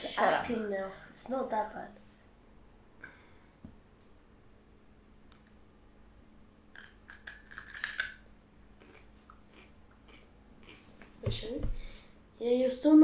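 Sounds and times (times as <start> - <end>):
crunching and chewing vegetable: 6.7 - 11.2.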